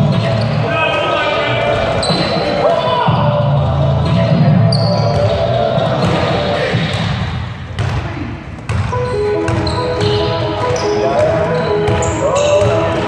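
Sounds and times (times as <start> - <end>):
basketball bouncing on gym floor: 4.8 - 13.0
music with long held notes: 9.0 - 13.0.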